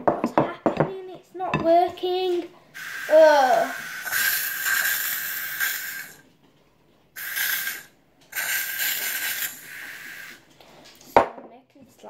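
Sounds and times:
aerosol can spraying hiss: 0:02.8 - 0:06.2, 0:07.2 - 0:10.5.

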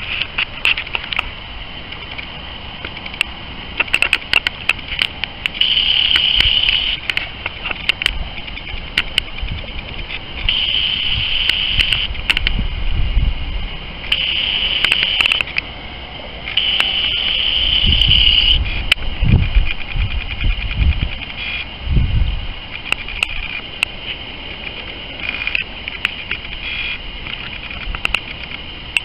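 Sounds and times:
sharp clicks: 0:01.9 - 0:12.6, 0:14.0 - 0:15.7, 0:16.4 - 0:21.7, 0:22.7 - 0:29.0
insect trilling: 0:05.5 - 0:07.0, 0:07.6 - 0:12.4, 0:14.0 - 0:21.8, 0:22.7 - 0:28.5.

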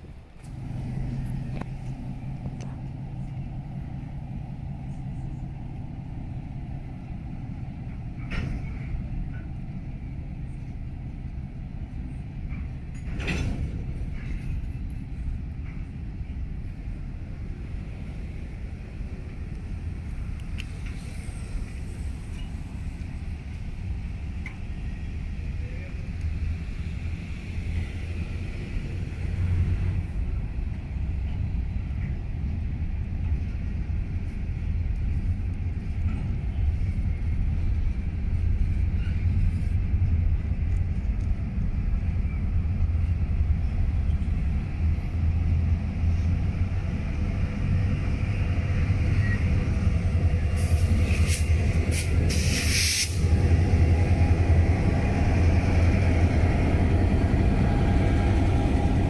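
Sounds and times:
diesel locomotives: 0:00.0 - 0:59.0
train wheels rumbling on rail: 0:00.0 - 0:59.0
sharp hissing bursts: 0:50.6 - 0:53.2.

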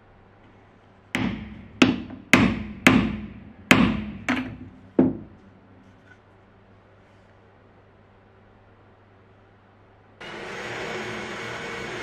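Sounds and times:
hammer striking metal pin: 0:01.2 - 0:05.4.

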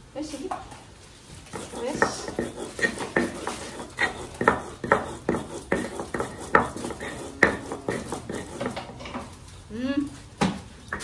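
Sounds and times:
utensil clinking against metal bowl: 0:01.5 - 0:09.4.

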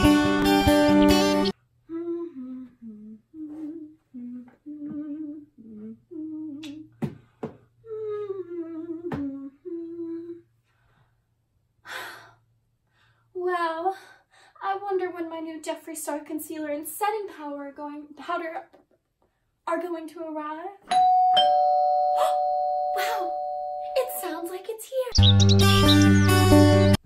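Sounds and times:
background music: 0:00.0 - 0:01.5
woman humming: 0:01.8 - 0:06.9, 0:07.8 - 0:10.5.

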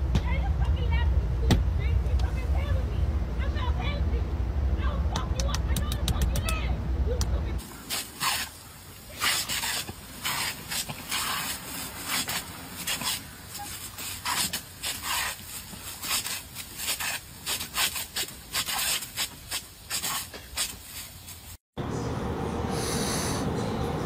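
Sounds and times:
dogs snapping at water spray: 0:07.6 - 0:21.1
sprinkler water jet hissing: 0:07.6 - 0:21.6.

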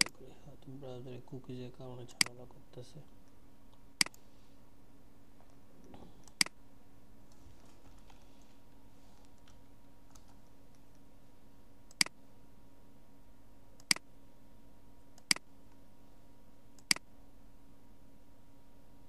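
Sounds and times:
faint steady hum: 0:00.0 - 0:19.0
computer mouse clicks: 0:04.0 - 0:04.2, 0:11.9 - 0:12.2, 0:13.8 - 0:14.0, 0:15.2 - 0:15.4, 0:16.8 - 0:17.0.

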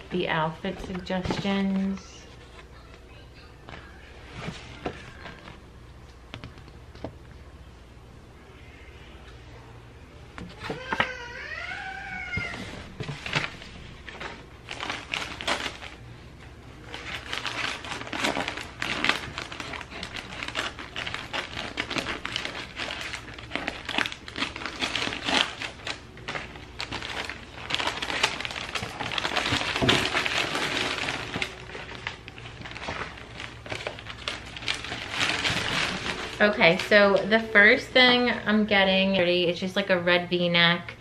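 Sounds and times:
paper rustling and crinkling: 0:03.7 - 0:06.7, 0:12.2 - 0:37.8.

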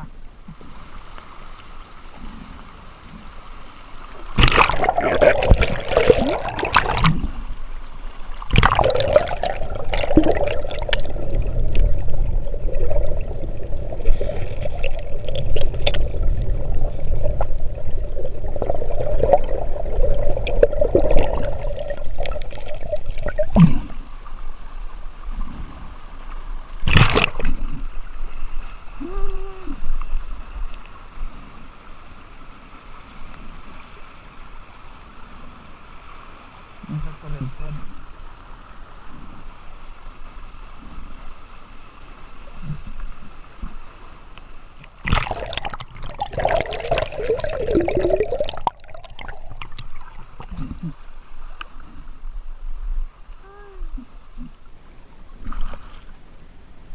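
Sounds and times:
muffled underwater river gurgle: 0:00.0 - 0:56.9
stream running: 0:00.0 - 0:56.9
water splash: 0:04.1 - 0:07.5, 0:08.4 - 0:24.1, 0:26.8 - 0:27.9, 0:44.8 - 0:51.0.

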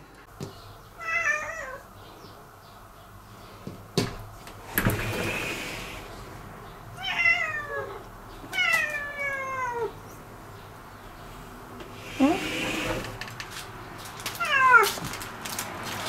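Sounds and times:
cat meowing: 0:01.0 - 0:01.8, 0:07.0 - 0:10.0, 0:14.4 - 0:15.0
sliding door knocks: 0:04.0 - 0:06.0, 0:11.9 - 0:13.4.

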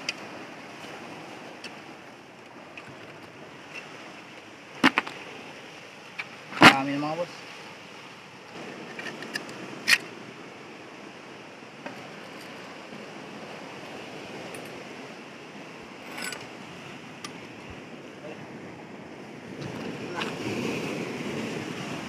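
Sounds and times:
surf hissing: 0:03.7 - 0:08.8, 0:09.8 - 0:22.0
knife scraping shells on rock: 0:08.8 - 0:10.1.

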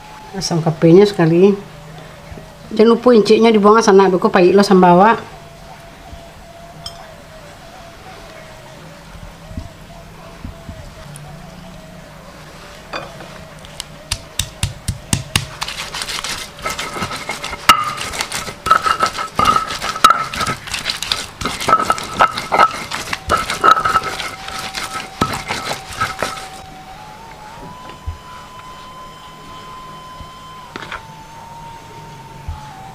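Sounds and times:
stone pestle grinding on mortar: 0:14.4 - 0:26.6.

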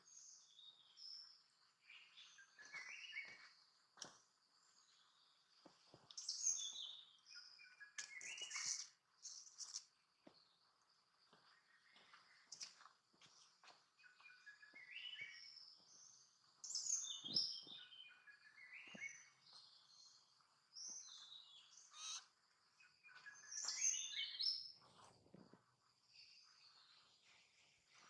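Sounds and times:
birds singing: 0:00.0 - 0:04.1, 0:06.1 - 0:09.8, 0:14.0 - 0:24.8.

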